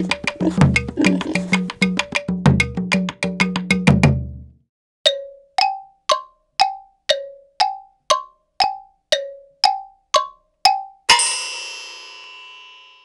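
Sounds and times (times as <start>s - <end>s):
bell-like percussion strikes: 10.8s - 13.0s.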